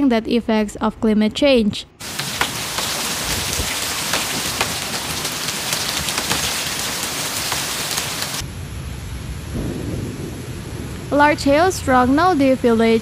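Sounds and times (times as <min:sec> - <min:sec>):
hailstones ticking: 0:02.0 - 0:08.4
heavy rain hissing: 0:02.0 - 0:12.0.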